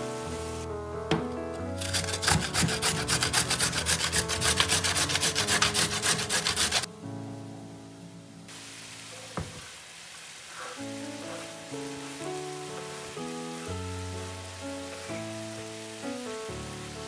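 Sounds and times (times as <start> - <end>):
carrot grating on metal grater: 1.8 - 6.9.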